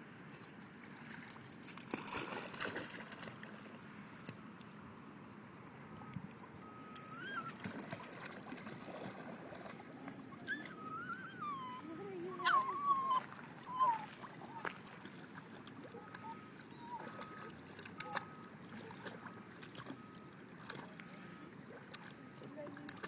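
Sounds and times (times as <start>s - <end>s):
dog wading in shallow water: 0.2s - 23.0s
small dog whining: 6.6s - 7.7s, 10.3s - 14.8s, 16.0s - 19.0s.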